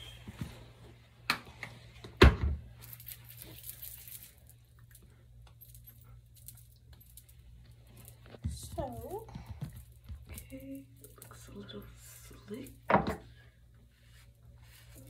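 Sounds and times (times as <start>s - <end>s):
steady low hum: 0.0s - 15.0s
light clinking and rattling: 2.7s - 13.5s.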